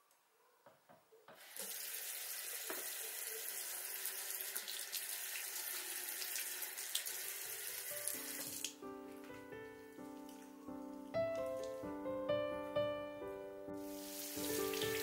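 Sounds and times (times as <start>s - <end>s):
water running into sink: 1.4s - 8.8s, 13.9s - 15.0s.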